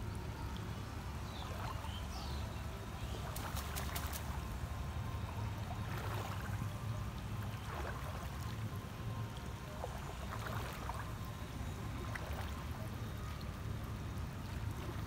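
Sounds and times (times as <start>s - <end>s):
water sloshing and dripping: 0.0s - 15.0s
sharp splashes: 3.0s - 6.8s, 9.3s - 11.2s, 11.9s - 13.9s.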